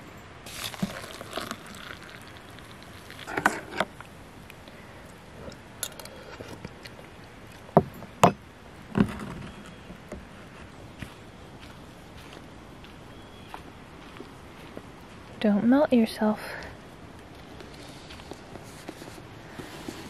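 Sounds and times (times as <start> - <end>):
hot water pouring into mug: 0.5 - 3.7.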